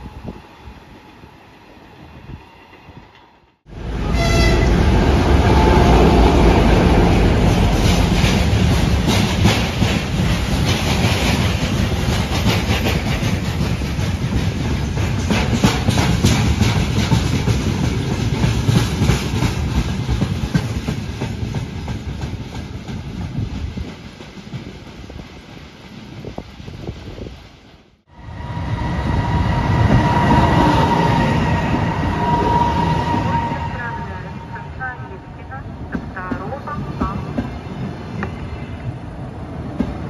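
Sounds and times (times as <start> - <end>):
diesel locomotive engine: 0.0 - 40.0
train wheels clacking on rail joints: 7.4 - 25.5.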